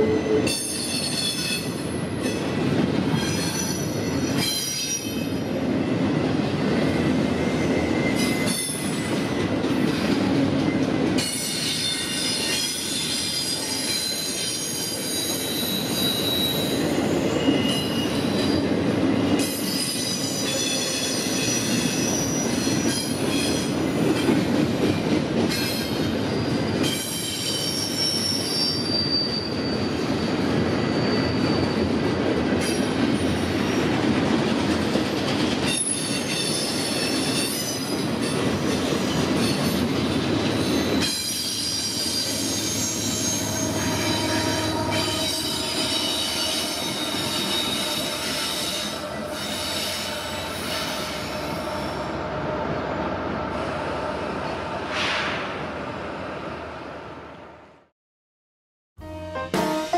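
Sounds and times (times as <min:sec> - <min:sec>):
train wheels rumbling on rails: 0:00.0 - 0:56.4
high-pitched wheel squeal: 0:11.3 - 0:18.5, 0:26.4 - 0:31.9, 0:40.6 - 0:52.2.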